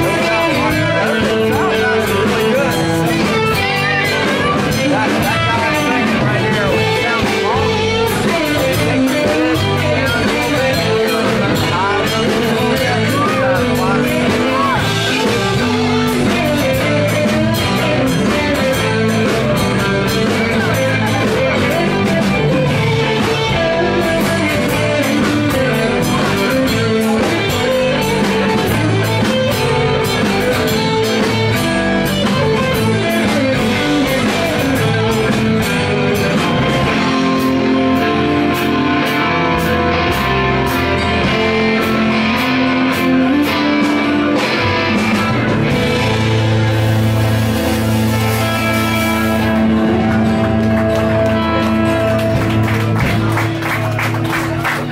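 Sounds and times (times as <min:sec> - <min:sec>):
drum kit: 0:00.0 - 0:54.9
electric guitars: 0:00.0 - 0:54.9
rock band playing: 0:00.0 - 0:54.9.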